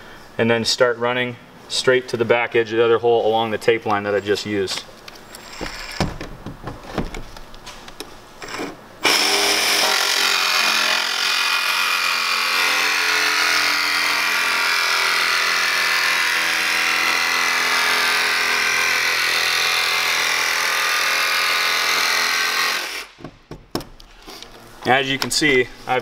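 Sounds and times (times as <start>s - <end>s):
jigsaw cutting thin steel: 8.4s - 23.1s.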